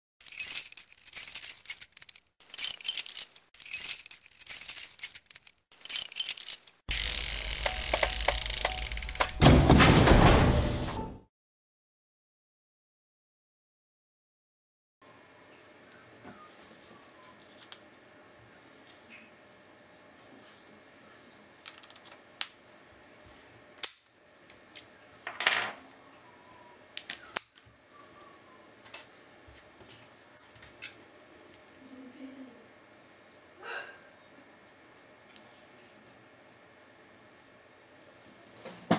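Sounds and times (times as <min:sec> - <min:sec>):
high-pitched metallic jingling: 0:00.2 - 0:06.8.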